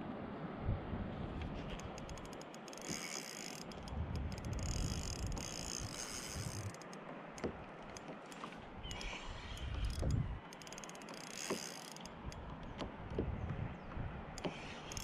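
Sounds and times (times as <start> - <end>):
fishing reel clicks: 1.8 - 7.0, 7.9 - 12.6, 14.4 - 15.0
fishing reel ticking and whirring: 1.8 - 12.6, 14.4 - 15.0.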